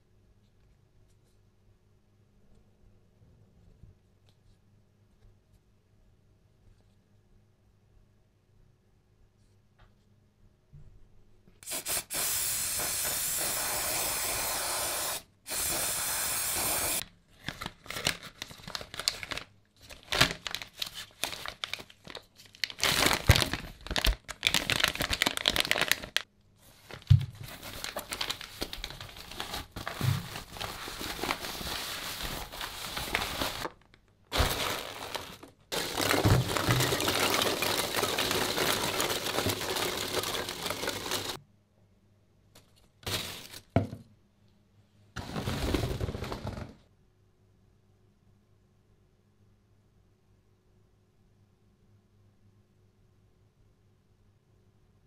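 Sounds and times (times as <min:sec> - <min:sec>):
loud steady hiss: 0:11.6 - 0:17.0
crackling and clattering: 0:33.6 - 0:41.4.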